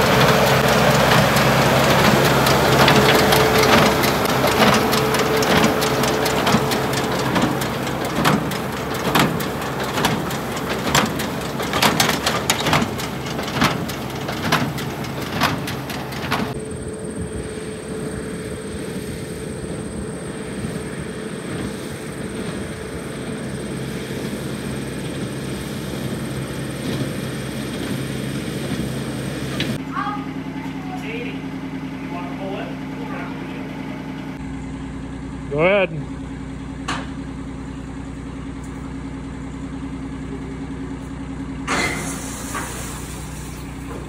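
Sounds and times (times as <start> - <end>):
baler knocking: 0.0 - 16.6
tractor and baler droning: 0.0 - 44.0.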